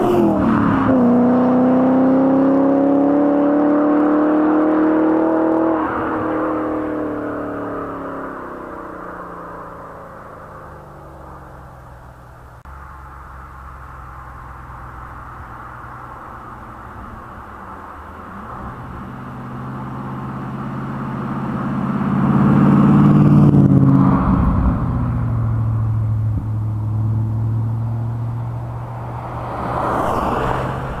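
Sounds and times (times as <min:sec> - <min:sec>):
car engine low exhaust note: 0:06.7 - 0:29.2.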